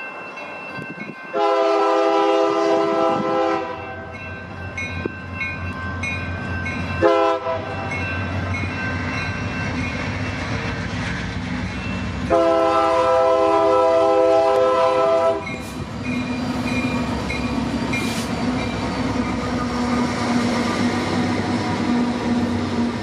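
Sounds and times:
crossing bell dinging: 0.0s - 10.8s, 11.6s - 12.8s, 15.0s - 20.0s
locomotive rumble: 0.1s - 23.0s
locomotive air horn blasts: 1.3s - 4.1s, 7.0s - 7.9s, 12.3s - 15.8s.

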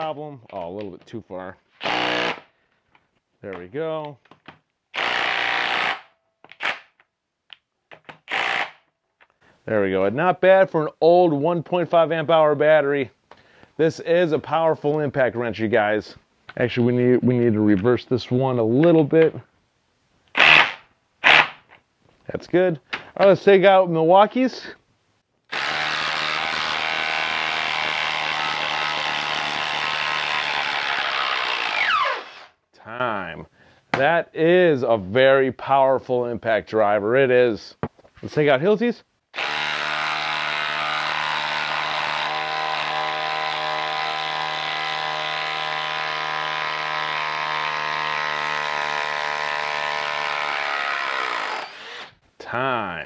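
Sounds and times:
impact driver hammering: 1.8s - 2.4s, 5.0s - 6.1s
impact driver buzzing: 1.8s - 2.5s, 5.0s - 6.9s, 8.2s - 8.8s, 20.4s - 21.6s, 25.5s - 32.5s, 39.4s - 52.2s.

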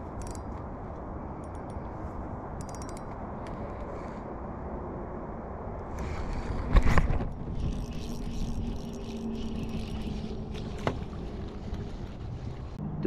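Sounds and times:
fishing reel being cranked: 0.2s - 0.4s, 7.5s - 10.8s
wind on microphone: 3.4s - 12.8s.

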